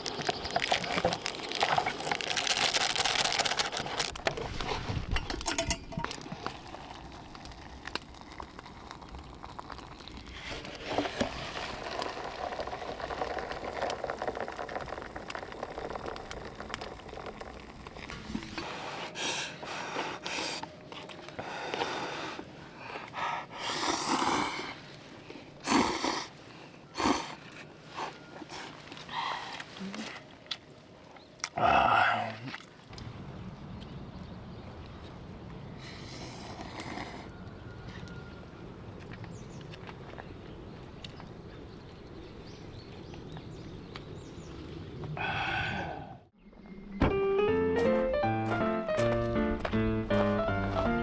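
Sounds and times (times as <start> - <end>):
water pouring into paper cup: 0.0 - 4.2, 6.2 - 18.3
noodle slurping: 6.4 - 18.7.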